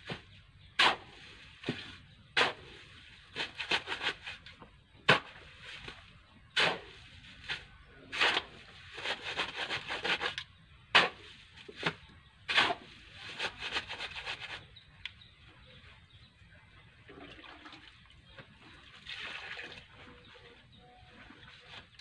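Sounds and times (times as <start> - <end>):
metal shovel scraping sand: 0.8 - 4.4, 5.1 - 14.7.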